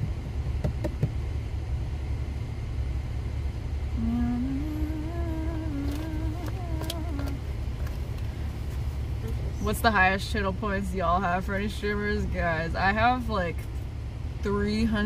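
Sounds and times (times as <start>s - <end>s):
car cabin road rumble: 0.0s - 15.0s
person humming a tune: 4.0s - 7.4s.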